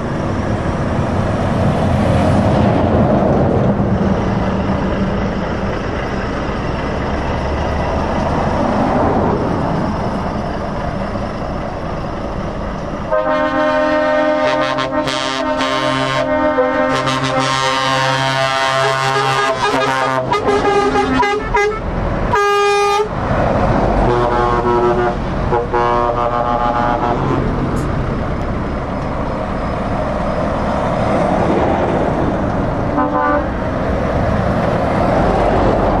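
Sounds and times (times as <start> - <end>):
truck engines and tyres rumbling: 0.0 - 36.0
lorry air horns: 13.1 - 23.1, 24.0 - 27.5, 33.0 - 33.5.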